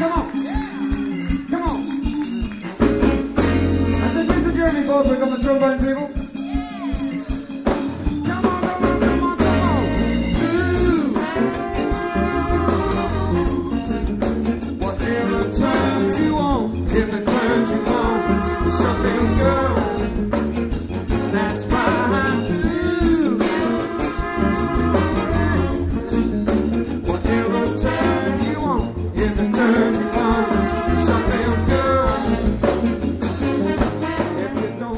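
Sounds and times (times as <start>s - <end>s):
funk band playing: 0.0s - 34.9s
trombone solo: 9.3s - 14.2s, 17.3s - 22.6s, 23.4s - 26.4s, 27.1s - 28.9s, 29.6s - 34.9s.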